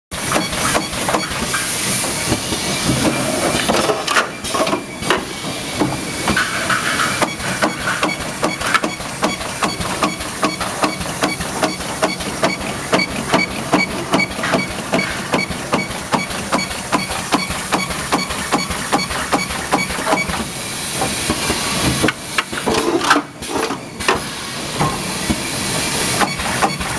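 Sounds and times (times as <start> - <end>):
hiss: 0.2 - 3.6, 19.9 - 26.9.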